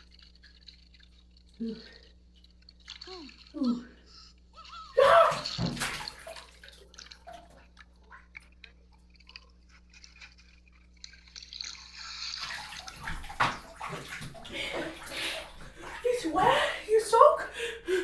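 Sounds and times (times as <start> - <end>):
splash into swimming pool: 5.0 - 6.7, 11.7 - 15.2.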